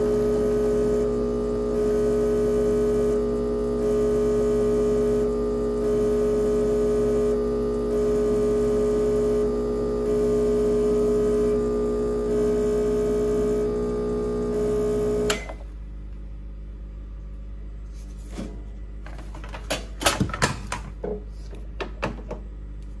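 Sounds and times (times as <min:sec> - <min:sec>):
espresso machine pump humming: 0:00.0 - 0:15.7
portafilter clicks and knocks: 0:19.3 - 0:21.2.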